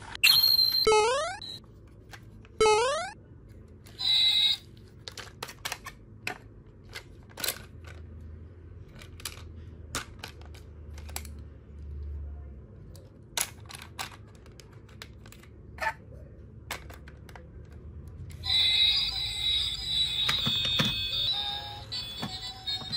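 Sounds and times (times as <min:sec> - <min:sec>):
plastic toy parts clicking together: 0:05.0 - 0:08.0, 0:08.9 - 0:11.5, 0:12.9 - 0:15.6.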